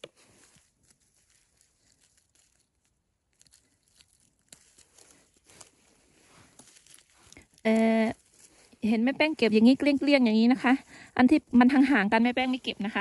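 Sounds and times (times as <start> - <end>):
mushroom stems snapping: 0.0 - 5.8, 6.5 - 8.7
rustling in leaf litter: 0.0 - 13.0.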